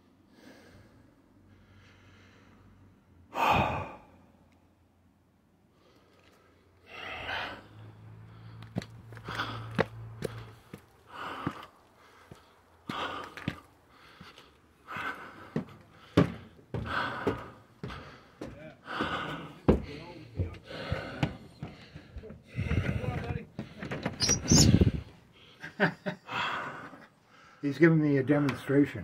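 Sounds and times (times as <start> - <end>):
person breathing heavily: 0.1 - 4.4, 5.6 - 25.6, 26.2 - 27.6
footsteps: 8.6 - 25.1.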